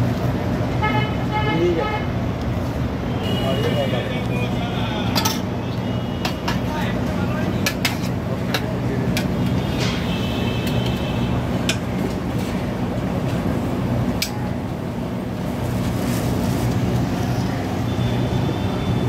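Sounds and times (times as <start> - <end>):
street traffic noise: 0.0 - 19.0.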